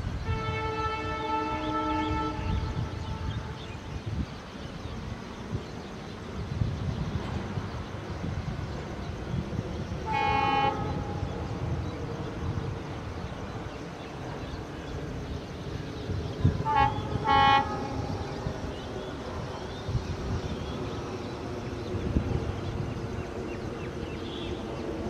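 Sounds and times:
low locomotive rumble: 0.0 - 25.0
locomotive horn blasts: 0.2 - 3.4, 10.0 - 11.2, 16.6 - 18.2.

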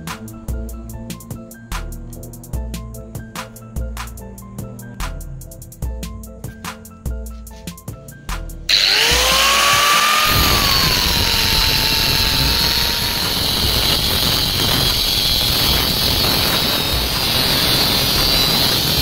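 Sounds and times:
angle grinder cutting steel: 8.7 - 19.0.

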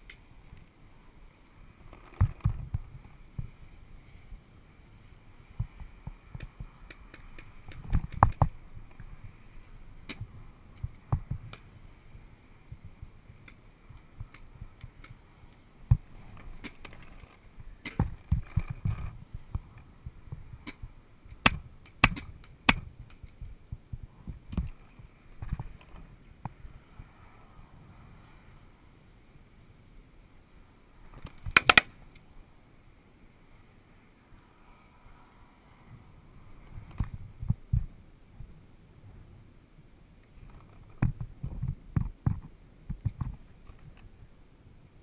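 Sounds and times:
paintball markers firing: 31.5 - 31.9.

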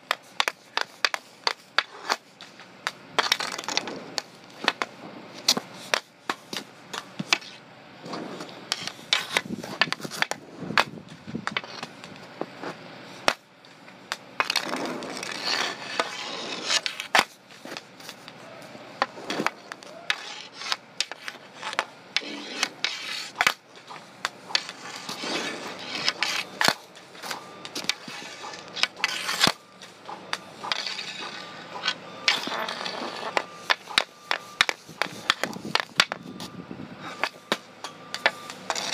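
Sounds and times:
hockey stick clacking plastic ball: 0.0 - 7.6, 8.7 - 12.5, 19.0 - 36.5
stick scraping pavement: 0.0 - 38.9.

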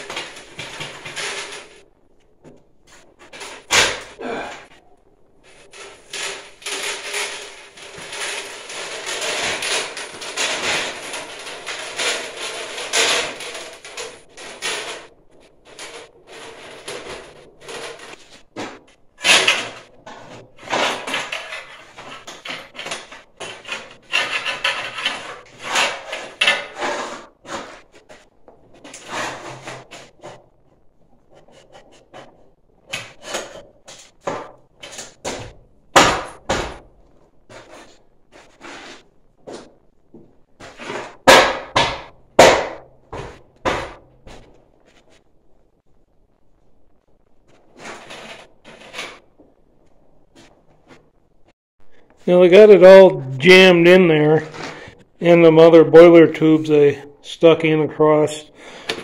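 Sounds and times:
metal tube rattling and scraping: 0.0 - 1.8, 5.4 - 36.8.

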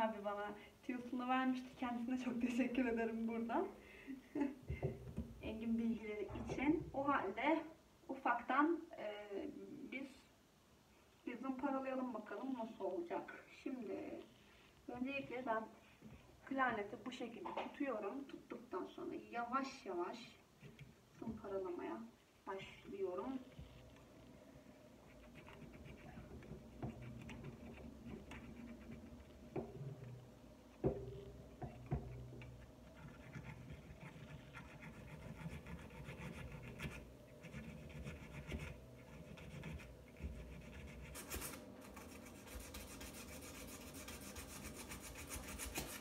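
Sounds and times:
sandpaper scratching on cork: 33.0 - 46.0.

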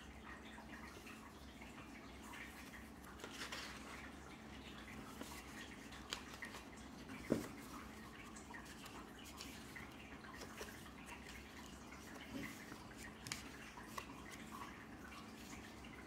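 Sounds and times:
paper pages rustling: 2.6 - 4.1, 5.1 - 14.5.

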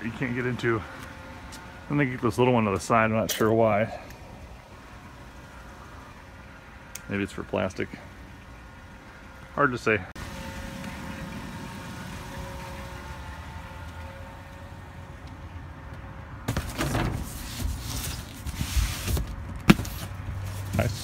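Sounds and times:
cardboard scraping and rustling: 16.5 - 21.0.

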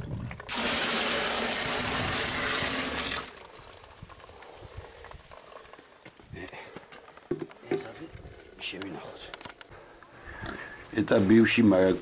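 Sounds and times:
juice pouring into plastic barrel: 0.0 - 5.9.

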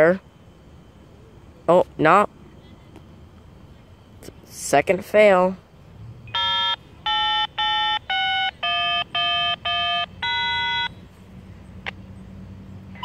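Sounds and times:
electronic beeping tune: 6.3 - 10.9.

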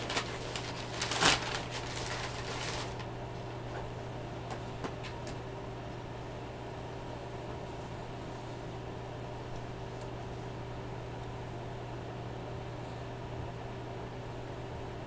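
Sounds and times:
packaging rustling and crinkling: 0.0 - 3.1
steady low hum: 0.0 - 15.0.

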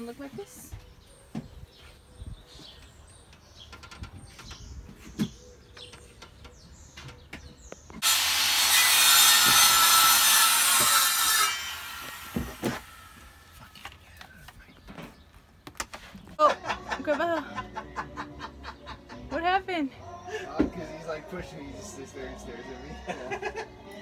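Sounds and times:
power tool rasping on wood: 8.0 - 13.1.

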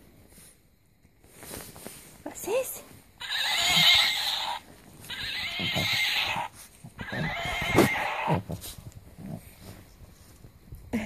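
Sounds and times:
toy horse whinny from small speaker: 3.2 - 8.4.

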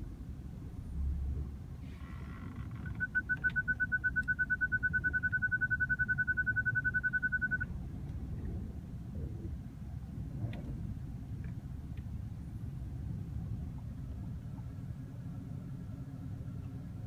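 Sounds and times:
low engine and cabin rumble: 0.0 - 17.0
parking sensor beeping rapidly: 2.8 - 7.7.

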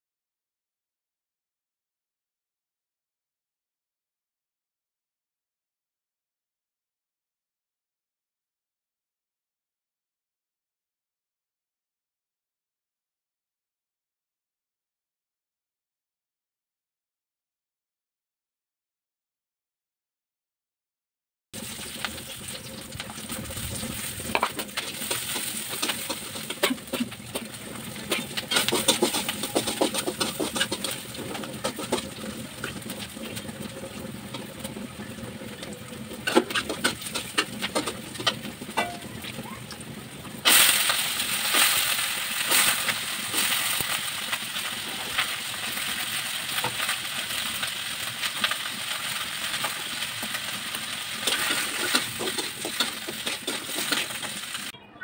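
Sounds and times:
metal spatula scraping a pan: 21.6 - 39.4, 40.5 - 43.9, 49.5 - 54.7
vegetables sizzling in hot oil: 21.6 - 54.7.

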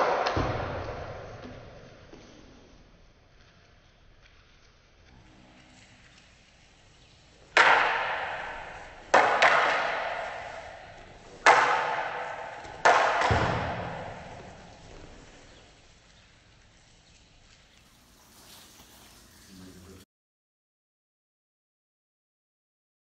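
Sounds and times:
wooden staffs clacking: 5.4 - 19.3.

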